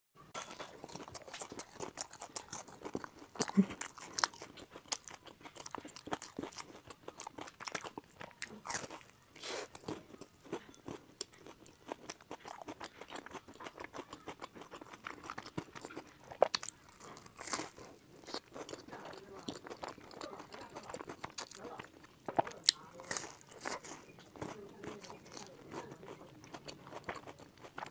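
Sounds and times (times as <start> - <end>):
wet chewing: 0.4 - 27.9.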